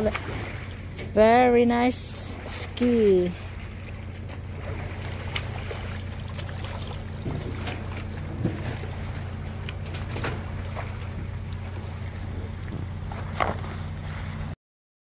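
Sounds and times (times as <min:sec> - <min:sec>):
boat engine idling: 0:00.0 - 0:14.6
water lapping: 0:00.0 - 0:14.6.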